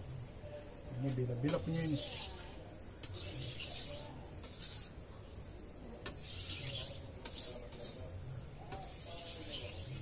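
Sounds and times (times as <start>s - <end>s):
blade scraping on whetstone: 1.5s - 4.9s, 6.1s - 8.0s, 8.8s - 10.0s.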